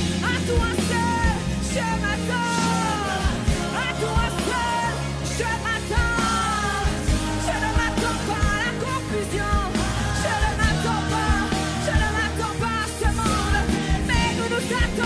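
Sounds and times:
bass: 0:00.0 - 0:15.0
drum beats: 0:00.0 - 0:15.0
woman singing: 0:00.2 - 0:15.0.

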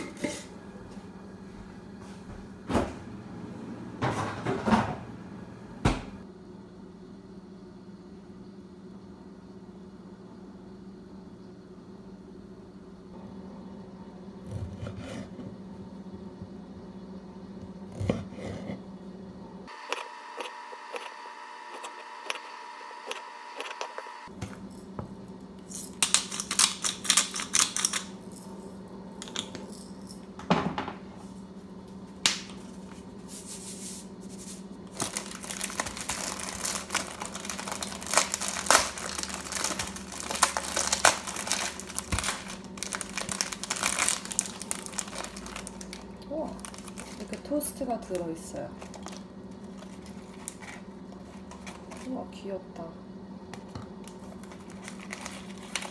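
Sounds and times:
plastic packaging rustling: 0:32.7 - 0:52.2, 0:54.0 - 0:55.9.

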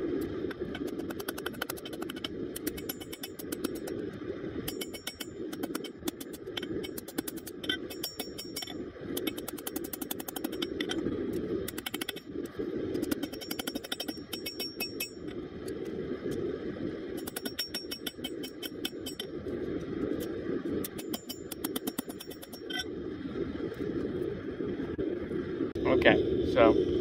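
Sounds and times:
forge burner rushing: 0:00.0 - 0:27.0
hammer striking metal on anvil: 0:07.8 - 0:08.7, 0:13.2 - 0:15.2, 0:17.2 - 0:19.2.

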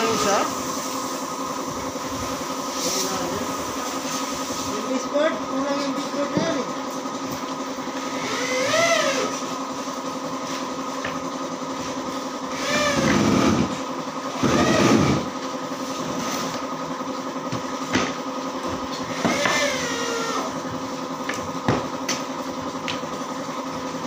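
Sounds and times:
table saw ripping wood: 0:08.1 - 0:09.5, 0:12.5 - 0:15.4, 0:19.0 - 0:20.5.

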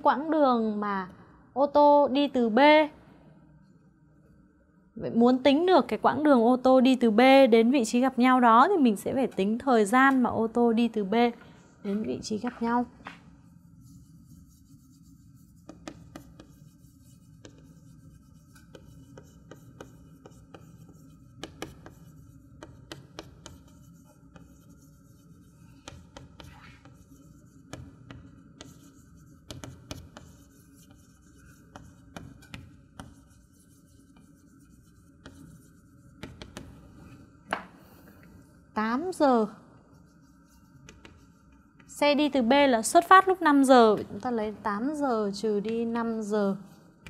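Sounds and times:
steady low hum: 0:00.0 - 0:47.0
chalk tapping on chalkboard: 0:12.0 - 0:37.8, 0:39.9 - 0:42.0.

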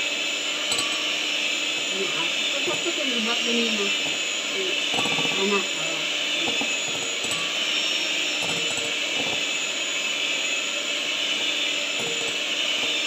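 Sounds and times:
electric hand mixer whisking: 0:00.0 - 0:13.0
beaters clinking against glass bowl: 0:00.6 - 0:02.0, 0:02.6 - 0:05.6, 0:06.3 - 0:09.5, 0:12.0 - 0:13.0.

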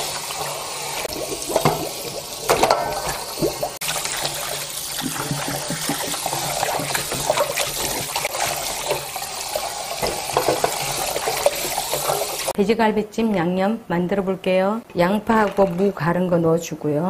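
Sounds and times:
splashing water: 0:01.0 - 0:12.6
tap running into metal bowl: 0:01.5 - 0:03.6, 0:05.0 - 0:09.1, 0:09.9 - 0:12.5.

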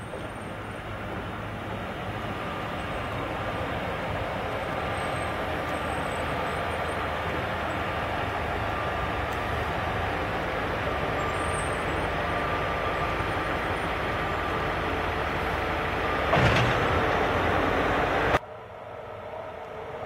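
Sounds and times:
diesel locomotive running: 0:00.0 - 0:20.0.

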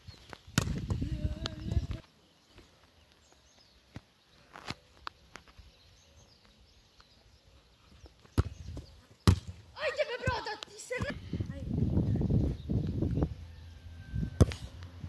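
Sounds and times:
football kick thud: 0:09.2 - 0:09.6.

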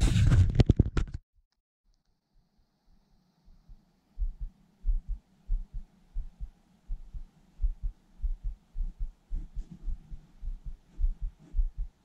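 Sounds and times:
heartbeat thumps: 0:03.5 - 0:12.0.

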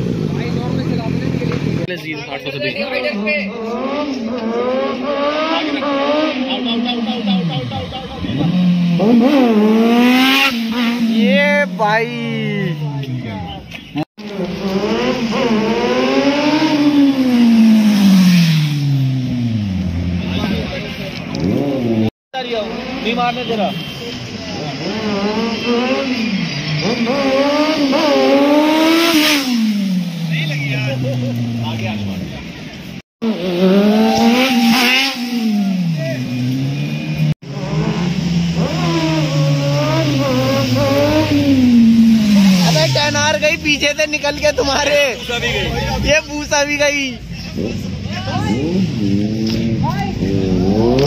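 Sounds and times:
motorcycle engines revving: 0:00.0 - 0:51.0
motorcycle accelerating past: 0:33.3 - 0:36.7, 0:48.4 - 0:51.0.

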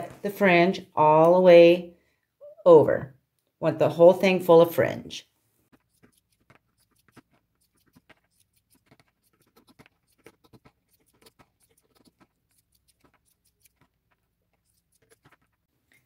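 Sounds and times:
scissors cutting leather: 0:05.7 - 0:15.7.

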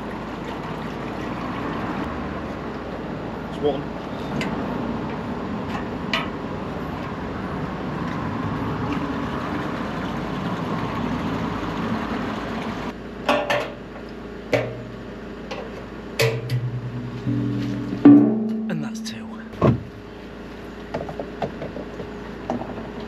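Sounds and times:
metallic clanks of a can: 0:13.3 - 0:13.8, 0:16.2 - 0:18.7.

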